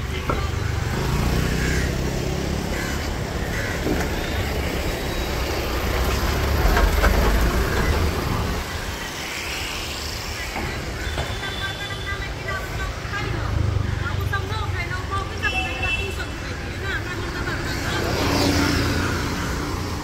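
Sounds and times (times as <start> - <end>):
motor scooter passing: 0.4 - 10.4, 16.4 - 20.0.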